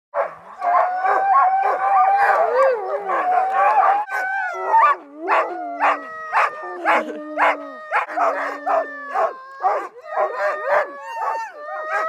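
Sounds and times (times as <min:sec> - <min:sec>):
dog barks: 0:00.2 - 0:00.8
sled dogs howling and yelping: 0:00.2 - 0:12.0.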